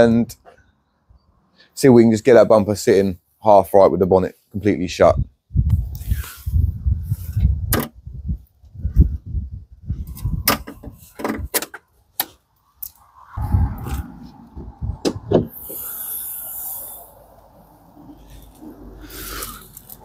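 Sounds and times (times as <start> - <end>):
knocks and rustling on car body: 14.6 - 15.6.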